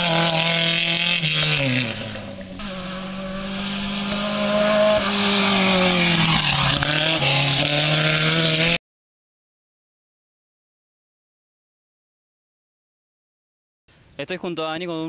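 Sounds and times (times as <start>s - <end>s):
buggy engines racing past: 0.0s - 8.8s.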